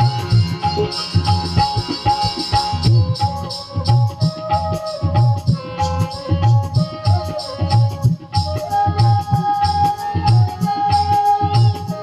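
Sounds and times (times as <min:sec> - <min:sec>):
flute long note: 0:03.0 - 0:12.0.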